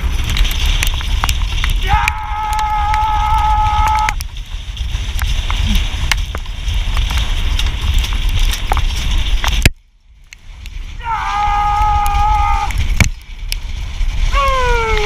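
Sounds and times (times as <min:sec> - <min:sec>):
wind rushing over microphone: 0:00.0 - 0:15.0
person yelling: 0:01.8 - 0:04.1, 0:11.0 - 0:12.7, 0:14.3 - 0:15.0.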